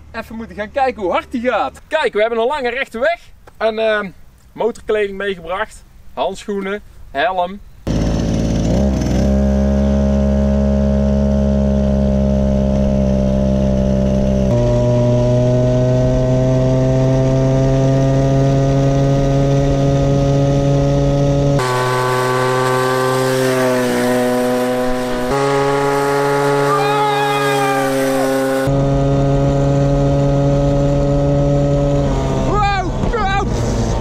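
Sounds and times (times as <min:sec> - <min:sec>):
two-stroke engine at high revs: 0:07.9 - 0:32.6.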